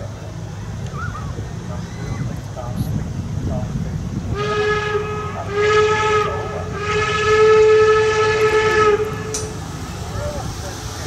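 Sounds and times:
locomotive rumble: 0.0 - 11.0
steam locomotive whistle: 4.3 - 9.6.

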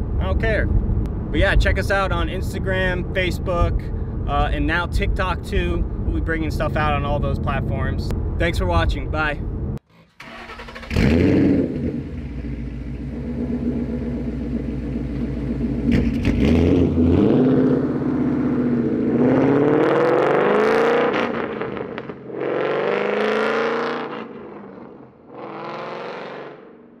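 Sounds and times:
loud car exhaust accelerating: 10.8 - 27.0.

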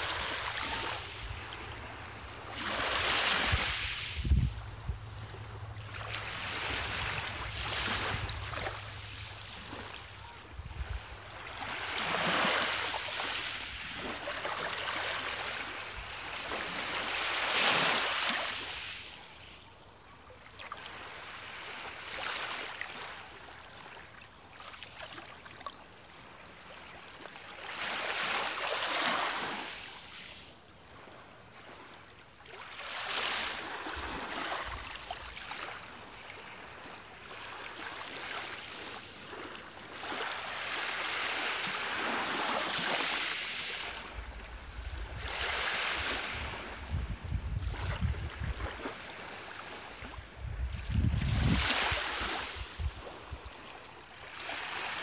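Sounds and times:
waves washing over pebbles: 50.9 - 53.3.

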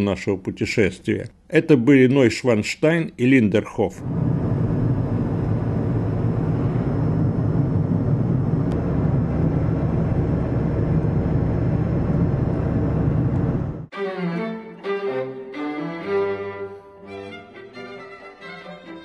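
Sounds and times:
car road and engine noise: 4.0 - 13.9.

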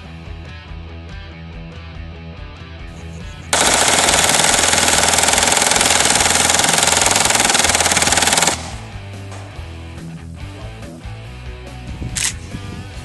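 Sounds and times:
automatic gunfire burst: 3.5 - 9.0.

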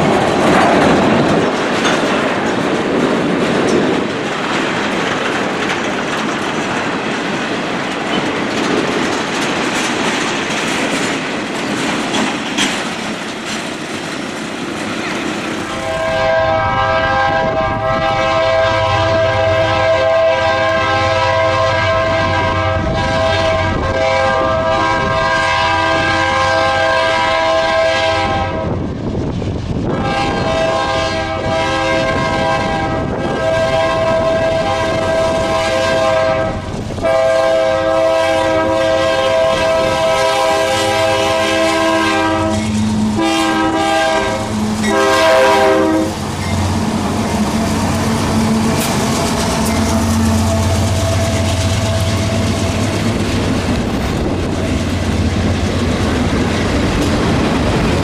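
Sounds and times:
freight cars rumbling and clacking: 0.0 - 16.2, 38.6 - 58.0
locomotive engines: 0.0 - 24.0, 34.2 - 58.0
locomotive air horn blasts: 15.7 - 28.7, 29.9 - 52.6.

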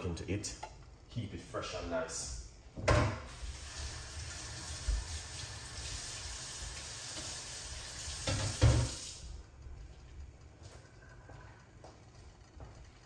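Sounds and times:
saucepan liquid simmering: 3.3 - 13.0.

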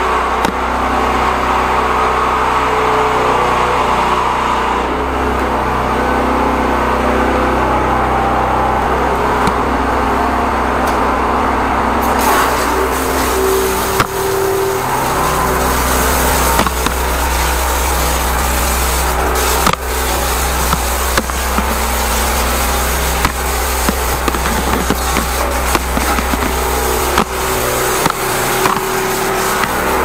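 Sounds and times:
pump engine drone: 0.0 - 30.0
broad water hiss: 12.0 - 30.0.

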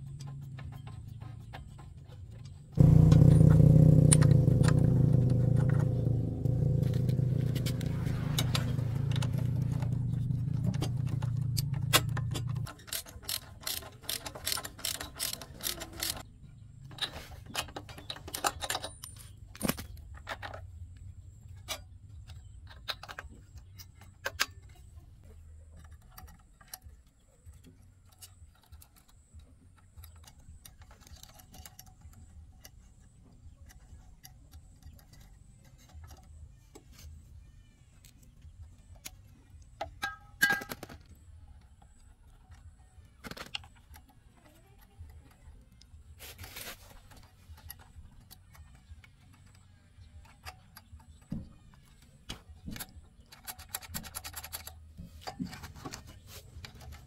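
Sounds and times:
small generator engine running: 2.8 - 12.6.

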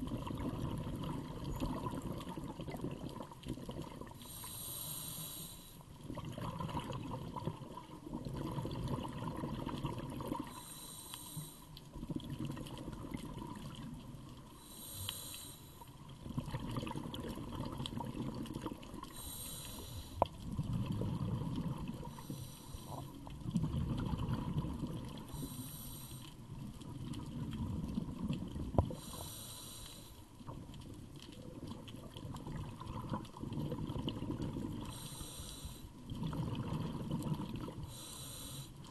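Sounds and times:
exhaled bubbles rumbling: 0.0 - 4.4, 5.9 - 10.6, 11.9 - 14.5, 15.9 - 25.6, 26.4 - 29.2, 30.3 - 35.4, 36.0 - 38.2
regulator inhale hiss: 4.2 - 5.9, 10.5 - 11.8, 14.5 - 16.0, 19.1 - 20.3, 22.1 - 23.2, 25.3 - 26.4, 28.9 - 30.2, 34.8 - 36.0, 37.8 - 38.9.

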